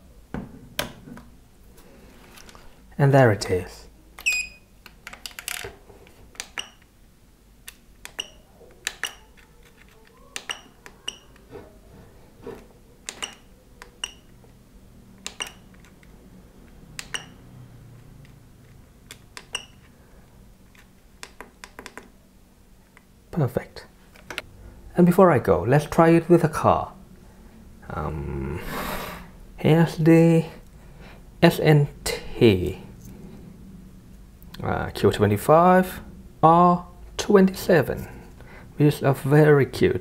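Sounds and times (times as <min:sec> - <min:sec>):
dial and buttons clicking: 0:06.3 - 0:06.9, 0:07.6 - 0:11.7, 0:13.0 - 0:14.6, 0:15.2 - 0:17.4, 0:18.0 - 0:19.9, 0:20.7 - 0:22.1.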